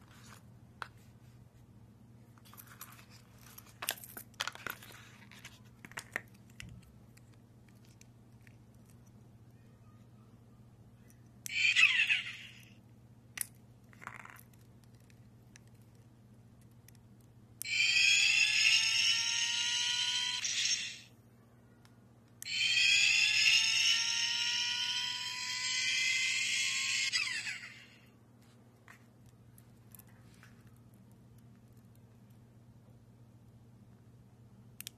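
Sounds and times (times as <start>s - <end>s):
electronic rising whine: 22.5s - 25.7s.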